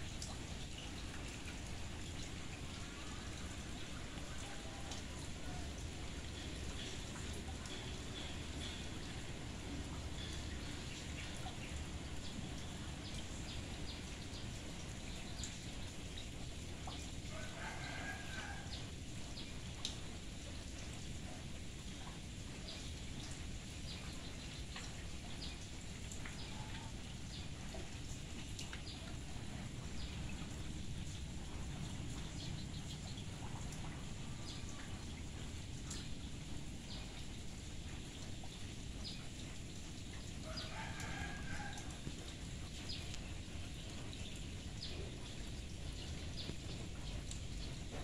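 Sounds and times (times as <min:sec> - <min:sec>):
outdoor hiss: 0:00.0 - 0:48.0
rain on shallow water: 0:00.0 - 0:48.0
rooster crowing: 0:17.3 - 0:18.8, 0:40.4 - 0:42.1.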